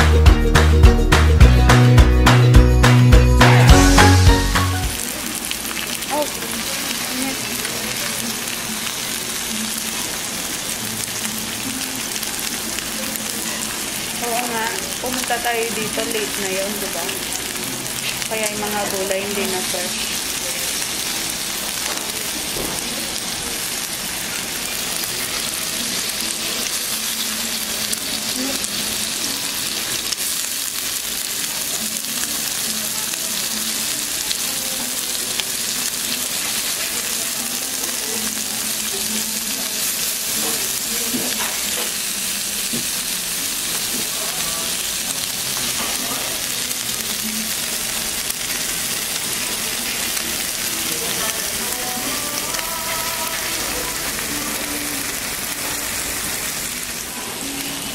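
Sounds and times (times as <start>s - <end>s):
meat sizzling on hot plate: 3.5s - 57.9s.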